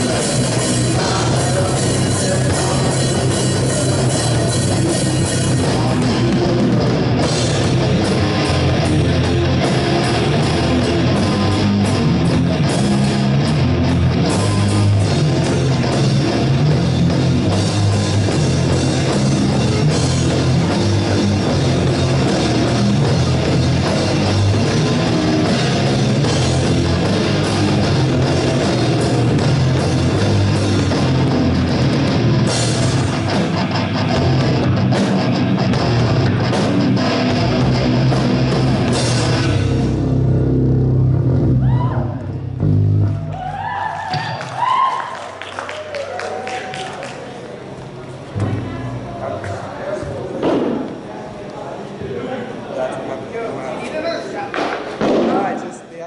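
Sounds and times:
drum kit: 0.0s - 43.3s
bass guitar: 0.0s - 44.6s, 47.9s - 49.8s
electric guitars: 0.0s - 44.8s.

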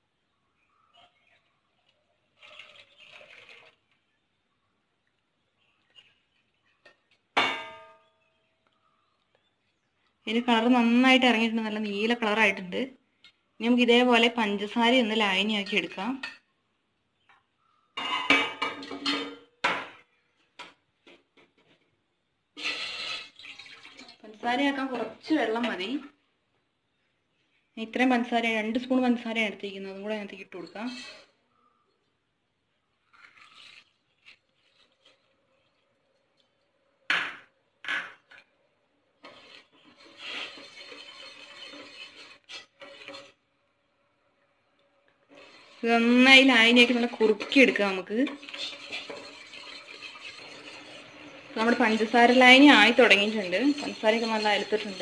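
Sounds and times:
metal pot and utensils clattering: 5.8s - 8.2s, 15.4s - 16.5s, 18.0s - 20.8s, 22.6s - 24.2s, 30.3s - 31.4s, 33.1s - 38.5s, 39.2s - 43.5s, 45.2s - 55.0s.

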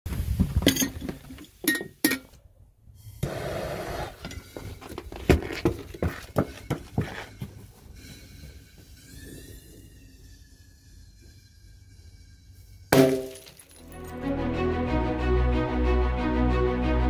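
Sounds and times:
butane torch hissing: 2.9s - 4.6s, 7.3s - 12.9s.

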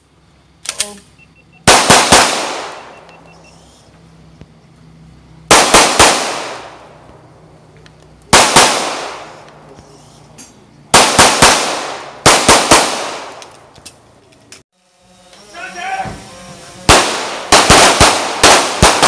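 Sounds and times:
gunshots echoing: 1.7s - 3.1s, 5.5s - 7.1s, 8.3s - 9.8s, 10.9s - 13.7s, 16.9s - 19.0s.

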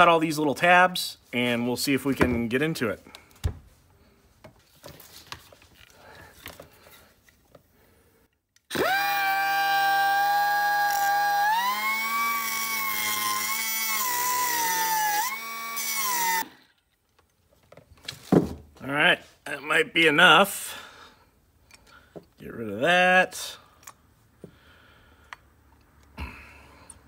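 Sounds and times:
band saw cutting steel: 8.7s - 16.5s.

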